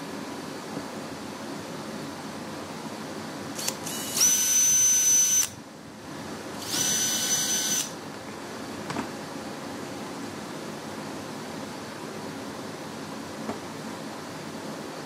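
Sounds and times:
cordless drill whining: 0:03.6 - 0:05.6, 0:06.6 - 0:08.0.

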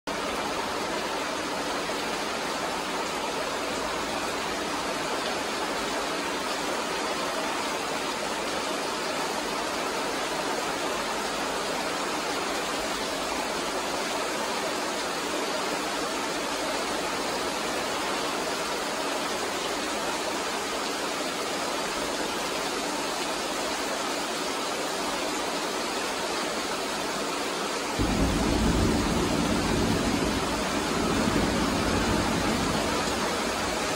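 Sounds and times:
heavy rain pouring: 0:00.1 - 0:33.9
deep rumble: 0:28.0 - 0:33.8.

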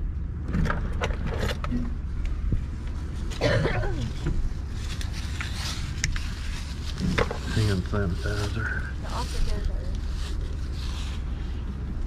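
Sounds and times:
car engine rumble from inside: 0:00.0 - 0:12.0
clicks and rustles: 0:04.0 - 0:08.6.

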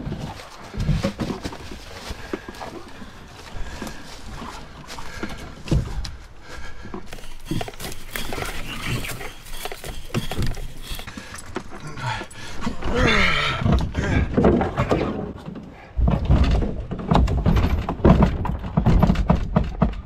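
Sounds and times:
footsteps on a trail: 0:00.0 - 0:12.7
canoe knocking and rustling: 0:00.0 - 0:20.0.

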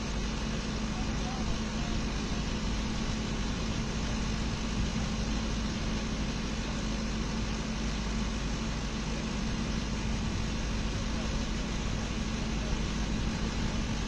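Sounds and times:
low steady hum: 0:00.0 - 0:14.0.

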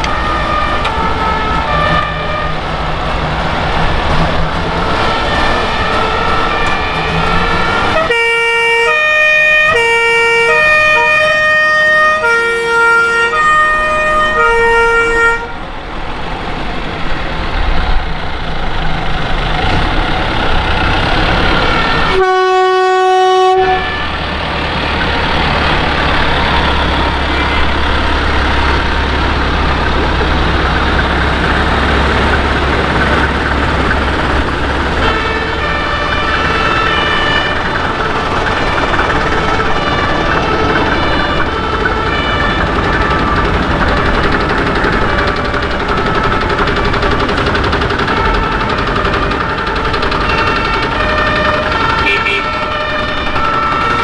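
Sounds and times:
two-tone siren: 0:00.0 - 0:02.6, 0:05.0 - 0:15.6, 0:21.6 - 0:24.2, 0:26.4 - 0:28.8, 0:34.9 - 0:54.0
deep diesel rumble: 0:00.0 - 0:54.0
fire engines running: 0:00.0 - 0:54.0
horn note: 0:05.2 - 0:09.1, 0:22.0 - 0:24.1, 0:50.2 - 0:54.0.

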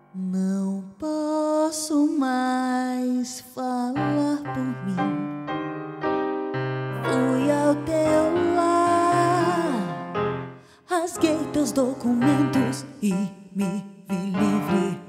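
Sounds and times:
piano chords: 0:04.0 - 0:15.0.

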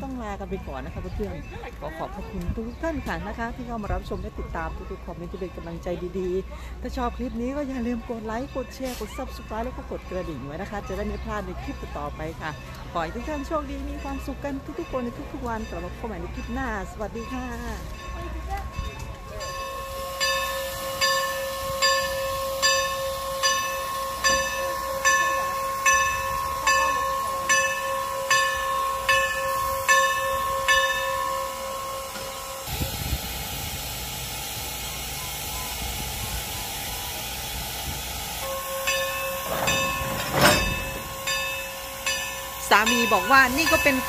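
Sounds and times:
locomotive bell ringing: 0:00.2 - 0:33.5, 0:34.1 - 0:44.0
steam hissing: 0:19.3 - 0:44.0.

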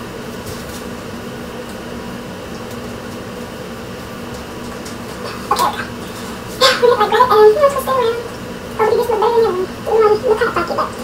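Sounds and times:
ventilation hum: 0:00.0 - 0:11.0.

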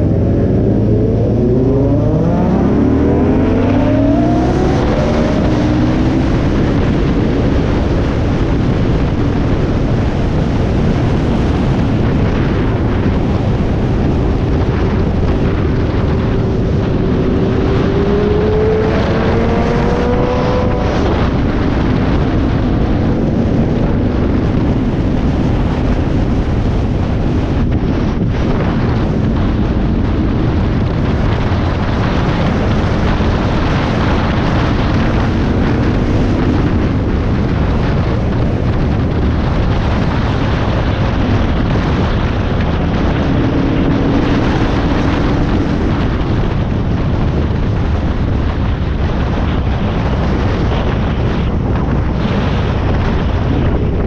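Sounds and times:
motorcycle engine running: 0:00.0 - 0:54.0
wind rush on microphone: 0:00.0 - 0:54.0.

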